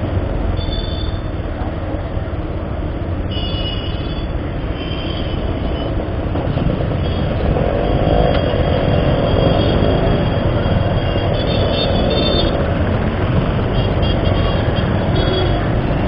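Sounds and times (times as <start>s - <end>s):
dense traffic: 0.0s - 16.0s
motorcycle engine rumbling: 5.4s - 16.0s.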